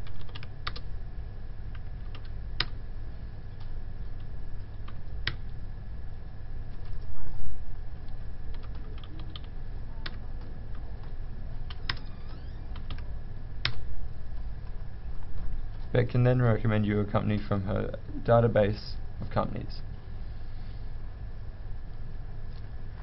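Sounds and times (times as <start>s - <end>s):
computer keyboard typing: 0.0s - 0.9s, 1.7s - 2.8s, 3.6s - 5.6s, 8.0s - 13.0s
low steady hum: 0.0s - 23.0s.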